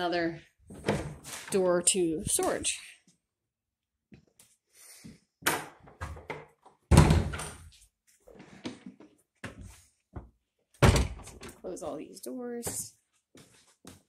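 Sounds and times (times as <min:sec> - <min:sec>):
doors knocking and thudding: 0:05.4 - 0:07.6, 0:10.8 - 0:11.6.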